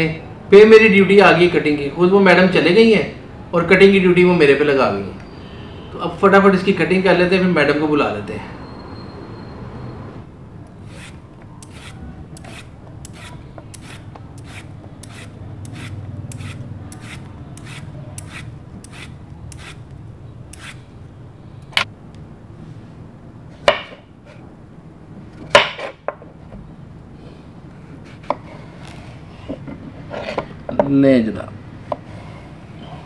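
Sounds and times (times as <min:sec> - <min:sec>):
peeler scraping vegetable skin: 0:10.8 - 0:20.9.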